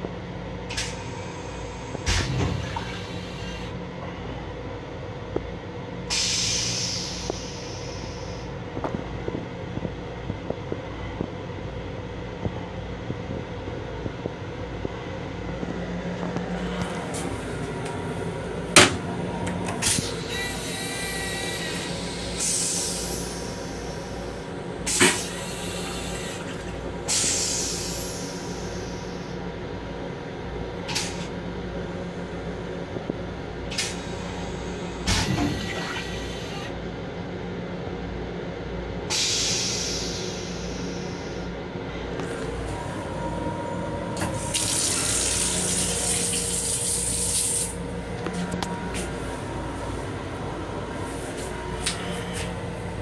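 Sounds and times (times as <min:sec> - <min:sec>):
train running hum: 0:00.0 - 0:53.0
rinse water hissing into toilet bowl: 0:44.4 - 0:47.8
faucet running into sink: 0:44.5 - 0:47.6.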